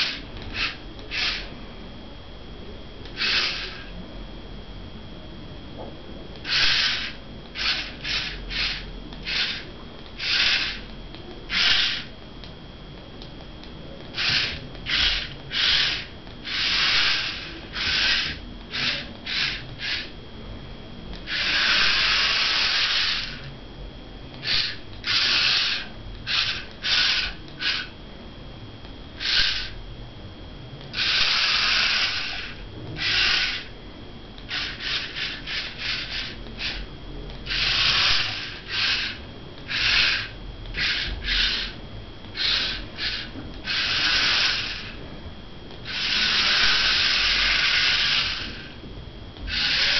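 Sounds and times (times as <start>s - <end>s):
toy car motors whirring: 0.0s - 1.5s, 3.1s - 3.9s, 6.4s - 10.9s, 11.5s - 12.1s, 14.1s - 20.1s, 21.2s - 23.5s, 24.4s - 27.9s, 29.2s - 29.8s, 30.9s - 33.7s, 34.5s - 41.8s, 42.4s - 45.0s, 45.8s - 48.8s, 49.5s - 49.9s.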